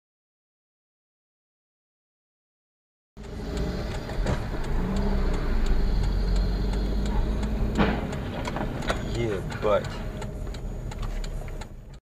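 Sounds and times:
road and engine rumble: 3.2 - 12.0
car crash bang: 7.8 - 9.0.

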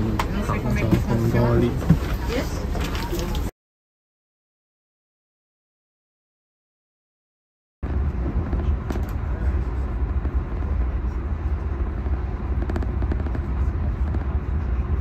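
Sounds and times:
train rumbling: 0.0 - 3.5, 7.8 - 15.0.

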